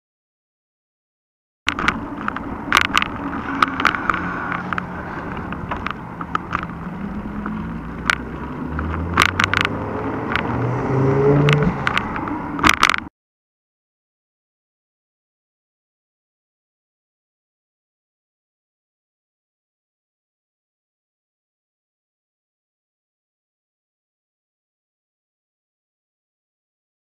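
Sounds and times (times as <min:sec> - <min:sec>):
camera mount clicking and knocking: 0:01.7 - 0:04.9, 0:08.0 - 0:10.5, 0:11.4 - 0:13.1
bike tyres rumbling on road: 0:01.7 - 0:13.1
car engine passing: 0:02.0 - 0:12.7.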